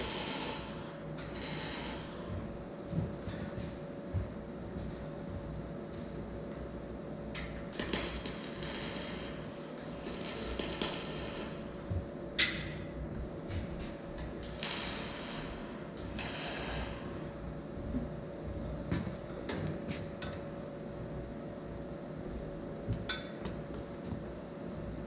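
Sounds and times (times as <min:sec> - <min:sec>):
arc welding crackling: 0:00.0 - 0:02.5, 0:07.7 - 0:12.6, 0:14.4 - 0:17.4.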